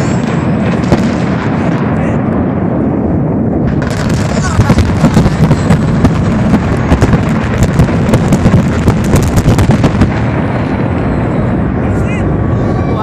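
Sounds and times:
building collapse rumble: 0.0s - 13.0s
demolition charges crackling: 3.6s - 13.0s.

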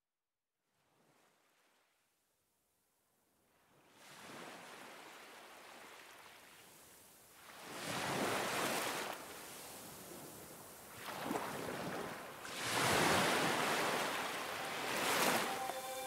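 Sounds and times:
ocean surf washing onto beach: 10.9s - 16.0s.

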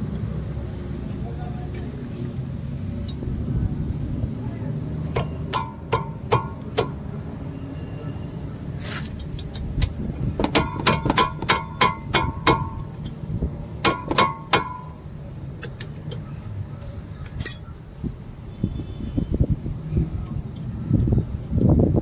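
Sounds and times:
spanner clicking on metal: 17.4s - 17.8s.

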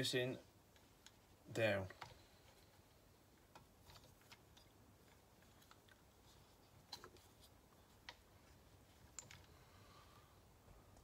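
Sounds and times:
small metal and plastic parts clicking: 9.1s - 9.5s.

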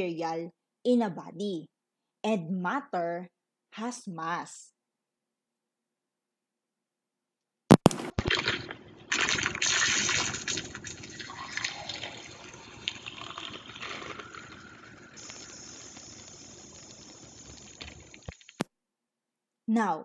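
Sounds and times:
sharp cracks: 7.7s - 18.7s
gushing splashing water: 8.2s - 18.6s
steady hiss: 9.7s - 18.6s.

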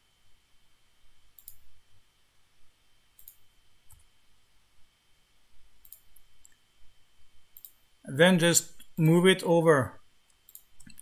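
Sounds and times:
computer mouse clicks: 1.4s - 1.6s, 3.2s - 4.1s, 5.8s - 6.6s, 7.5s - 7.8s, 10.3s - 11.0s.

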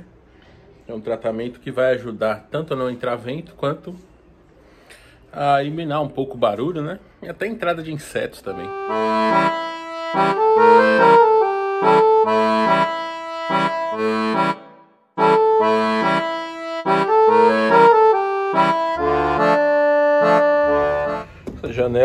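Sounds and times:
lively instrumental music: 8.5s - 21.4s.

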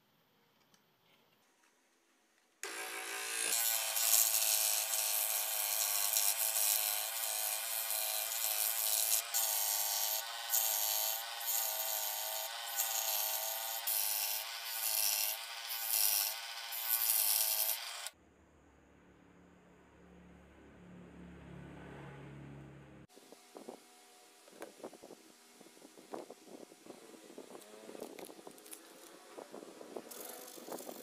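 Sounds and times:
saw blade rasping wood: 2.6s - 18.1s
scroll saw motor whine: 2.6s - 18.2s.

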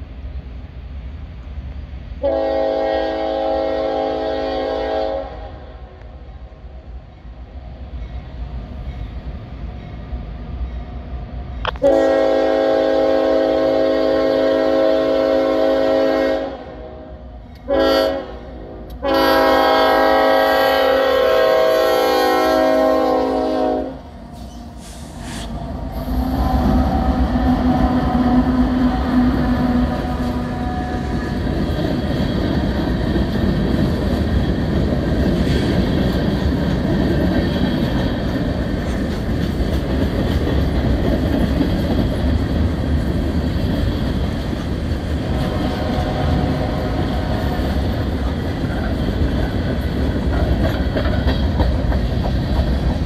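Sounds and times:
diesel locomotives passing: 0.0s - 53.0s
locomotive air horn blasts: 2.2s - 5.6s, 11.8s - 24.1s, 24.8s - 31.4s, 45.3s - 47.3s.

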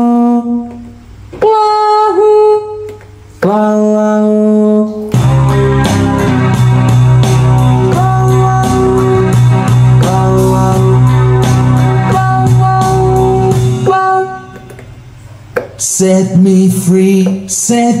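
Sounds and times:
sustained keyboard chords: 5.0s - 18.0s
keyboard drum beat: 5.1s - 15.0s
held low bass note: 5.2s - 14.4s.

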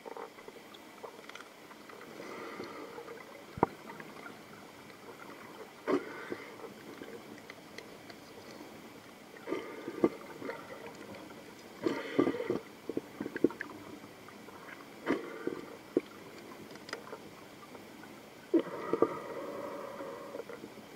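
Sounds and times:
low steady hiss: 0.0s - 20.9s
underwater gurgles: 0.0s - 20.9s
sharp underwater clicks: 5.9s - 8.7s, 15.1s - 17.8s.

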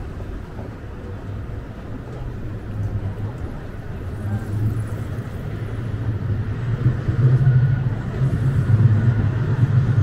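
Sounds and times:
cars rolling on brick street: 0.0s - 10.0s
tram rolling past: 0.0s - 10.0s.

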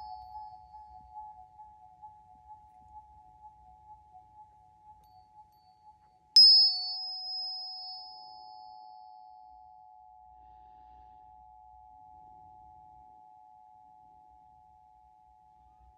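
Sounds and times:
tuning forks ringing: 5.2s - 14.4s
tuning fork struck ping: 6.4s - 14.4s.

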